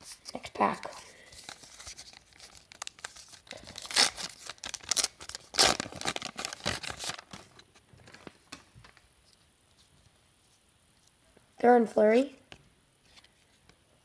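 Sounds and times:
card wrapper tearing and crinkling: 1.3s - 8.4s.

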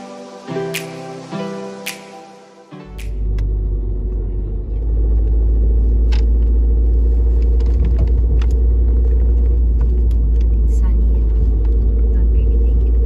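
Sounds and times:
car driving rumble: 3.2s - 13.0s.

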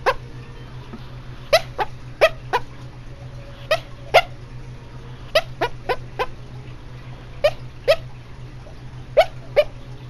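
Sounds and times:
dog yipping in sleep: 1.4s - 2.7s, 3.6s - 4.4s, 7.4s - 8.1s, 9.2s - 9.8s.

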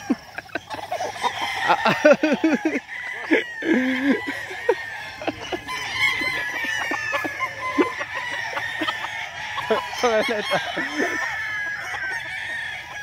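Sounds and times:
chickens clucking: 0.0s - 13.0s
roosters crowing: 0.0s - 13.0s.

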